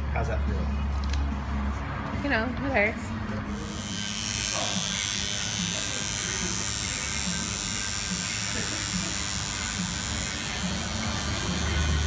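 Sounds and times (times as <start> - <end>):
tattoo machine buzzing: 3.5 - 12.0.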